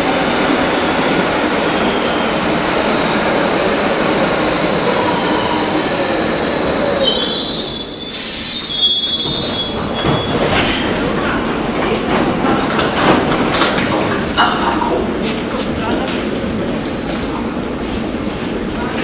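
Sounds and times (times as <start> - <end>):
train wheels rumbling on rail: 0.0 - 19.0
high-pitched brake squeal: 4.0 - 10.8.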